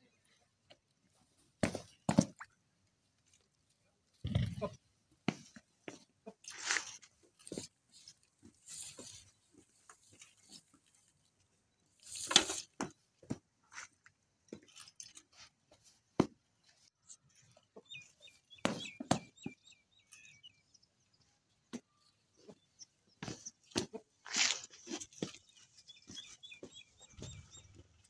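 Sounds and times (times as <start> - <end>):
small bird chirps: 17.0 - 23.7, 25.0 - 28.0.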